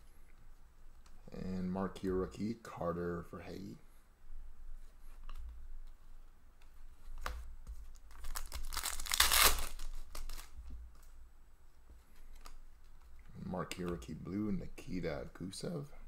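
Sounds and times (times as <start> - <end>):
plastic wrapper tearing and crinkling: 8.0 - 10.6.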